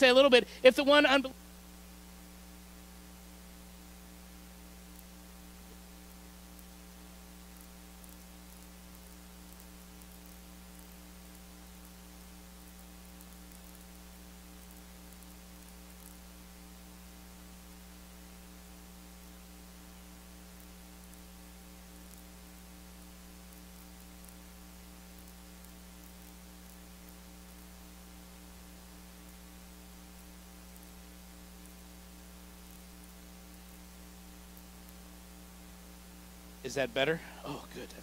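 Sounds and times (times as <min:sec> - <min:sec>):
faint hiss: 0:00.0 - 0:38.0
mains hum: 0:00.0 - 0:38.0.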